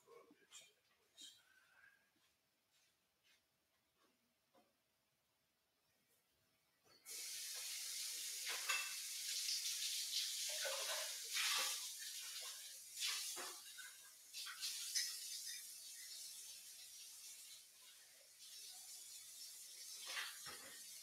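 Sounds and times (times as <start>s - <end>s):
steady hiss: 7.1s - 21.0s
kitchen clinks and knocks: 8.5s - 9.1s.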